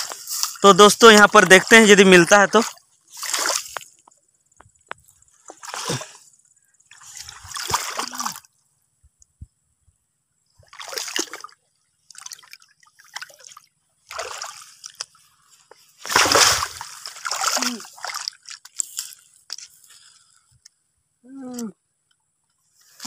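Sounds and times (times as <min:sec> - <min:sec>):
hands splashing in shallow water: 0:00.0 - 0:03.9, 0:07.0 - 0:08.4, 0:10.6 - 0:15.2, 0:16.0 - 0:19.2.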